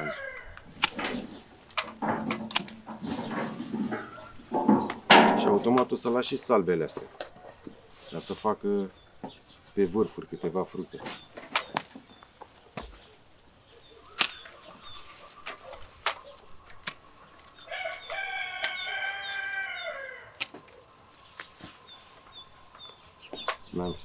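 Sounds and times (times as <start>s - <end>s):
rooster crowing: 0.0s - 0.6s, 17.7s - 20.4s
pruning shears snipping branches: 0.5s - 3.4s, 11.0s - 13.0s, 14.0s - 19.5s, 20.3s - 21.8s.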